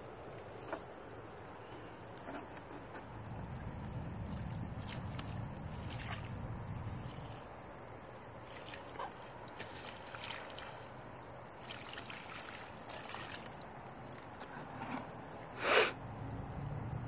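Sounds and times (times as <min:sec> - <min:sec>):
water splashing on burnt paper: 0:02.0 - 0:14.5.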